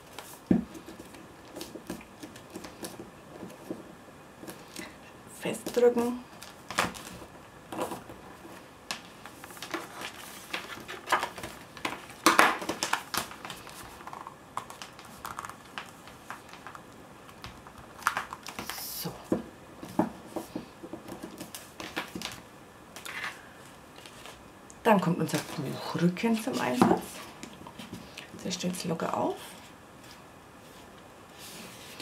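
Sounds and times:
paper rustling and sliding: 0:06.4 - 0:16.8, 0:24.0 - 0:24.4, 0:29.6 - 0:32.0.

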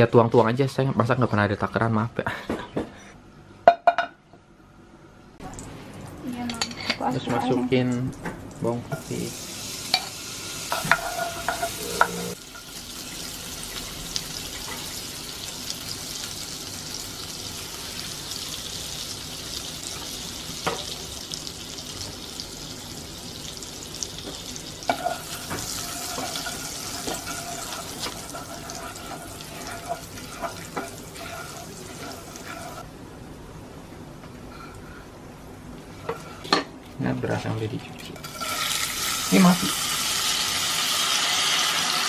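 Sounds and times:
garlic sizzling in a frying pan: 0:08.8 - 0:32.9, 0:38.2 - 0:42.0
wooden spatula scraping a pan: 0:10.8 - 0:12.4, 0:24.9 - 0:32.8.

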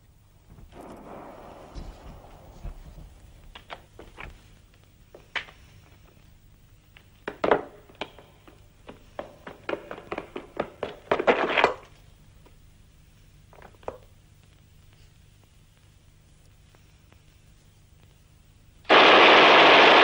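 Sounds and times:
running footsteps: 0:00.5 - 0:04.5.

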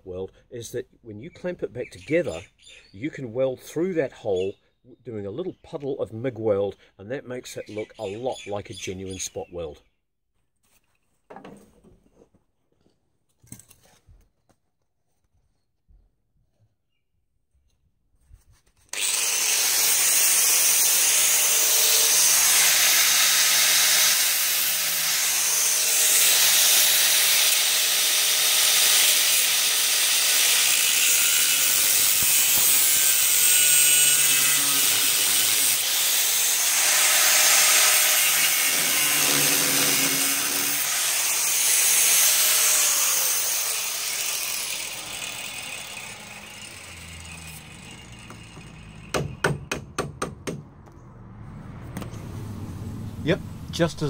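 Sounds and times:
angle grinder cutting steel: 0:18.9 - 0:49.5.

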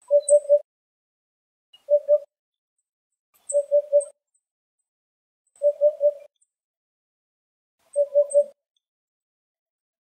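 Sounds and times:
bird hooting song: 0:00.0 - 0:00.7, 0:01.8 - 0:02.3, 0:03.4 - 0:04.2, 0:05.6 - 0:06.4, 0:07.8 - 0:08.6.

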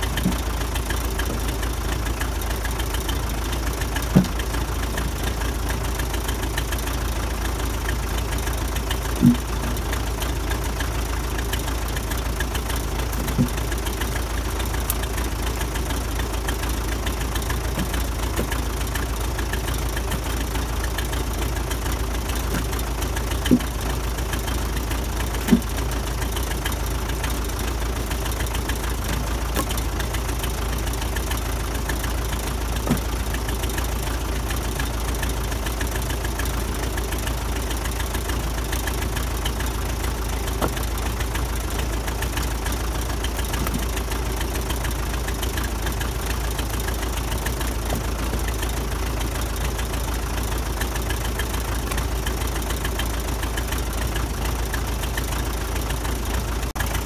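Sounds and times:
diesel engine idling: 0:00.0 - 0:57.0
firewood clunking into steel bucket: 0:04.0 - 0:05.2, 0:08.8 - 0:09.9, 0:12.6 - 0:14.0, 0:17.0 - 0:25.9, 0:28.2 - 0:30.2, 0:31.2 - 0:33.9, 0:40.5 - 0:41.2.

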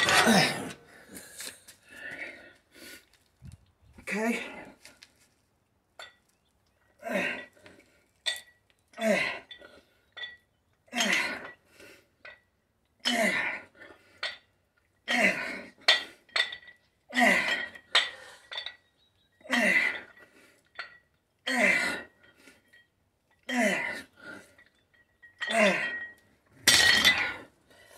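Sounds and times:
metallic dumbbell clinks: 0:09.5 - 0:11.2, 0:17.4 - 0:18.9, 0:24.6 - 0:27.4.

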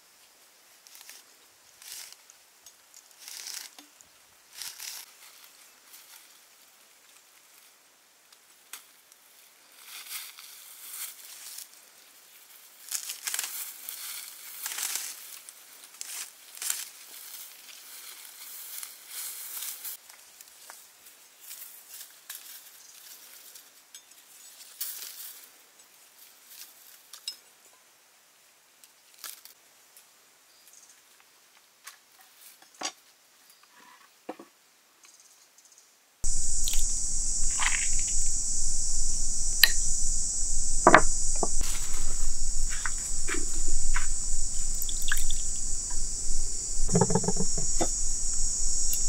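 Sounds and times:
sharp light clicks: 0:36.3 - 0:49.0.

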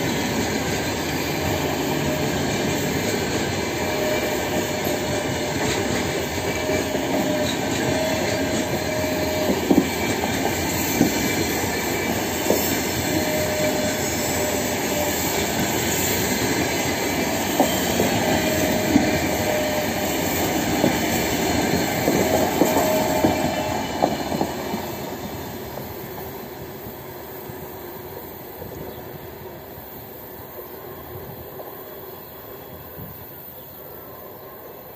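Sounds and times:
high wheel squeals: 0:00.0 - 0:26.6
train wheels rolling on rails: 0:00.0 - 0:34.9.

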